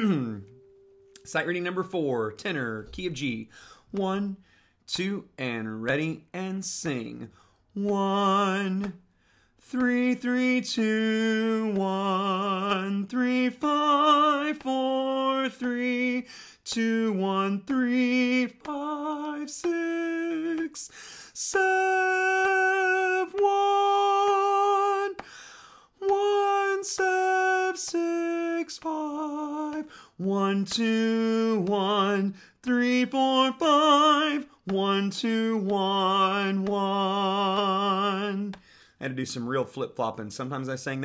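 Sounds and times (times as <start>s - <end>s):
man singing unaccompanied: 0.0s - 0.6s, 1.2s - 9.0s, 9.6s - 25.4s, 26.0s - 41.0s.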